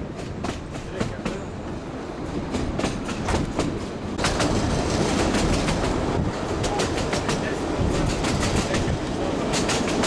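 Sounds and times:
train rumbling: 0.0 - 10.0
wheels clacking over rails: 2.4 - 10.0.

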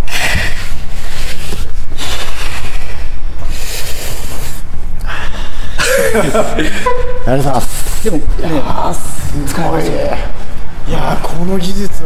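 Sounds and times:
rubbing and scraping on microphone: 0.4 - 4.7.

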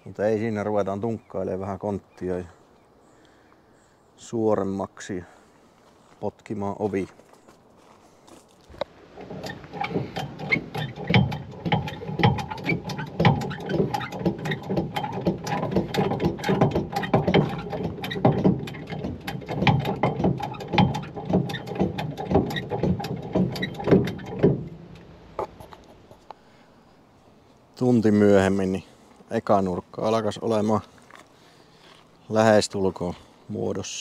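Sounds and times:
hydraulic ram clicking and knocking: 8.8 - 26.3.

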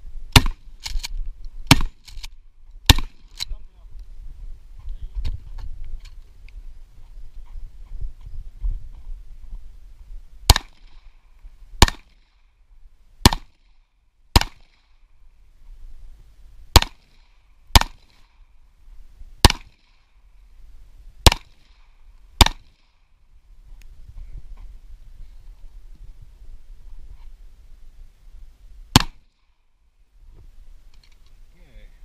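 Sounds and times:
pistol shots: 1.7 - 2.0, 2.9 - 3.3, 10.5 - 11.0, 11.8 - 12.4, 13.2 - 13.6, 14.3 - 14.9, 16.7 - 18.3, 19.4 - 20.0, 21.2 - 21.8, 22.4 - 22.9, 28.9 - 29.3.

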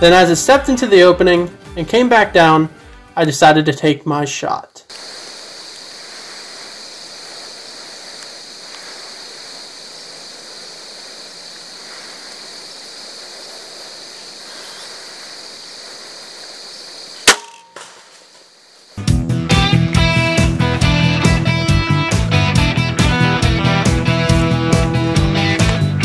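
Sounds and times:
woodland background hiss: 0.0 - 26.0
crossbow firing crack: 17.0 - 18.6.

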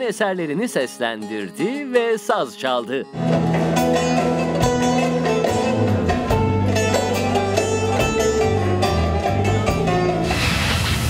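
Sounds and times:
plucked long-necked lute melody: 3.2 - 10.2
sustained bass accompaniment: 3.2 - 11.0
rushing noise: 10.2 - 11.0.

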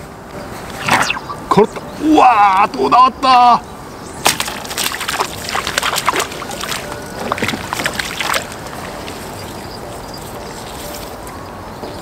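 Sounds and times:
fish splashing in water: 4.2 - 11.2.

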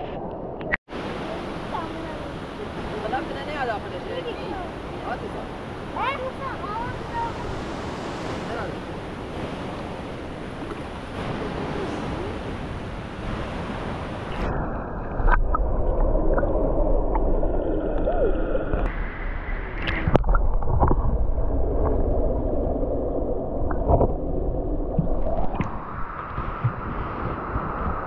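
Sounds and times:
rushing river water: 0.9 - 18.9
underwater gurgling rumble: 4.8 - 28.0.

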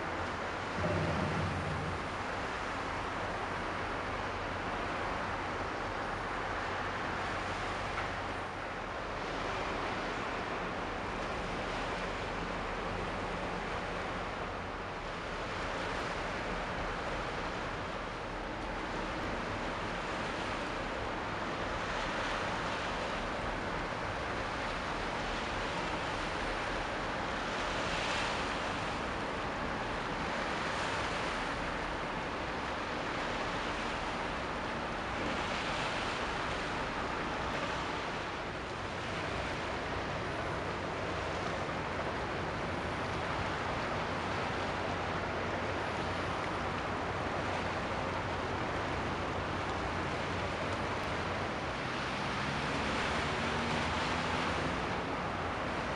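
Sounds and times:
wind noise: 0.6 - 4.1.

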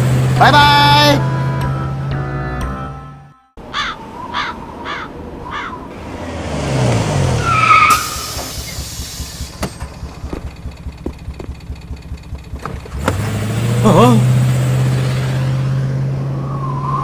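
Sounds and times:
bus engine: 0.0 - 2.9, 4.0 - 17.0
bird calling: 3.6 - 5.9
brakes squealing: 5.4 - 17.0
air brakes hissing: 7.7 - 9.9.

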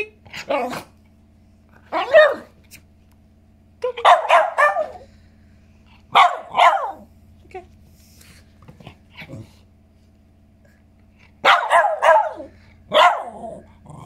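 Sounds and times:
puppy barking: 1.9 - 2.6, 4.0 - 5.1, 6.1 - 7.1, 11.4 - 13.6.

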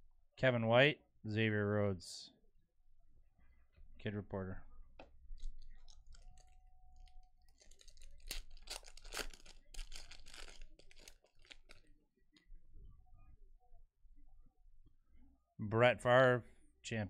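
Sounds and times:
foil wrapper crinkling and tearing: 5.4 - 11.9.

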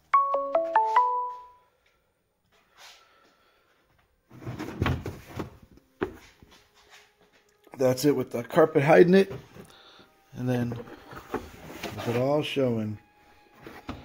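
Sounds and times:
rustling in car cargo area: 4.2 - 7.4, 10.4 - 12.8.

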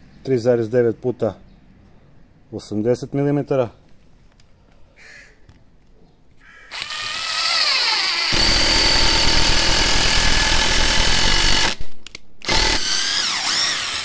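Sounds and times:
impact driver motor whine: 6.7 - 11.8, 12.4 - 14.0.

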